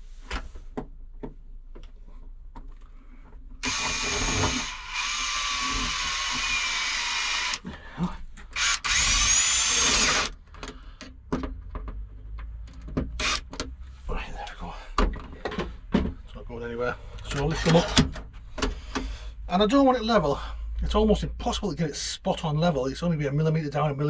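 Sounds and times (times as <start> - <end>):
cordless drill driving screws: 3.6 - 7.6, 8.5 - 10.4, 13.2 - 13.5.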